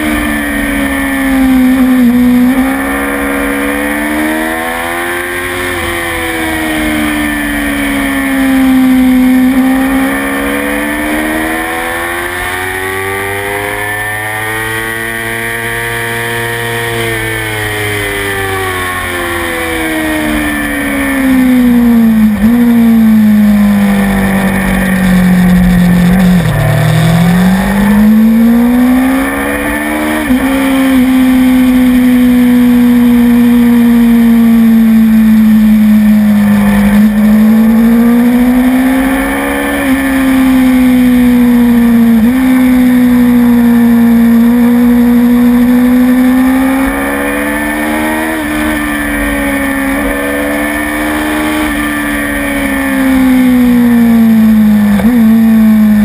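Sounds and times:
gear changes: 0.0 - 56.0
motorcycle engine at high revs: 0.0 - 56.0
wind and road noise: 0.0 - 56.0.

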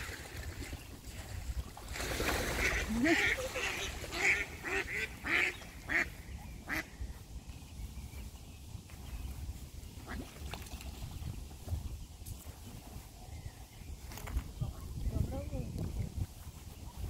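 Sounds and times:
duck quacking: 2.6 - 6.9.

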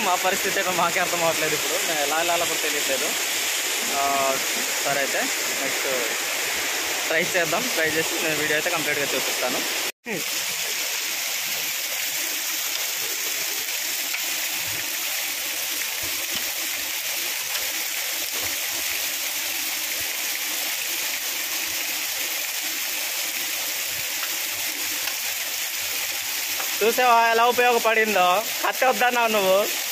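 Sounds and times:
waterfall roaring: 0.0 - 11.0.

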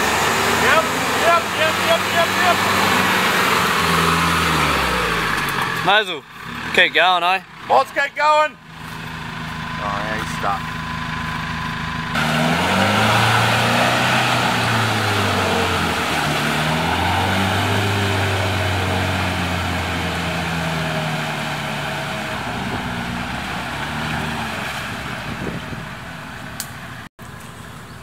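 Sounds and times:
engine revving hard: 0.0 - 7.2, 12.1 - 26.1.

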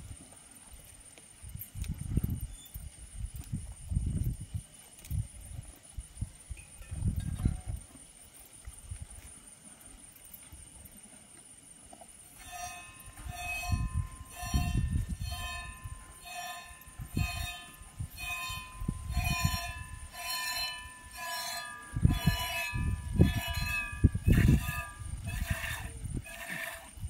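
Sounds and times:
pail ringing: 12.5 - 25.0.

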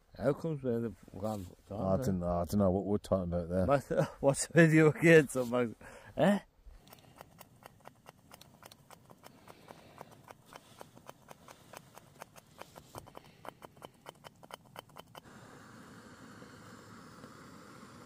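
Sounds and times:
gas stove hissing: 15.2 - 18.0.

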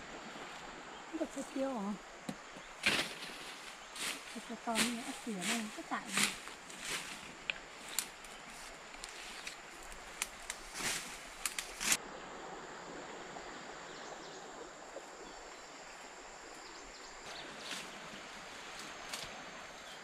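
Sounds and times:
undergrowth rustling underfoot: 0.0 - 12.0, 15.9 - 20.0
high insect buzz: 1.2 - 12.0.

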